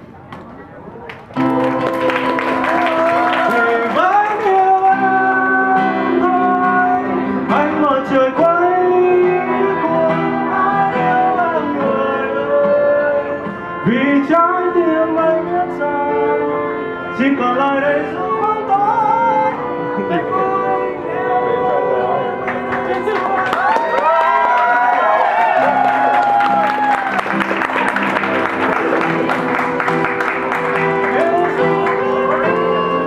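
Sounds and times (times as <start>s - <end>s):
electric keyboard: 0.0s - 33.0s
man singing into a microphone: 1.4s - 22.8s, 31.1s - 33.0s
acoustic guitar: 1.4s - 23.7s, 25.0s - 33.0s
violin: 1.4s - 23.7s, 25.6s - 33.0s.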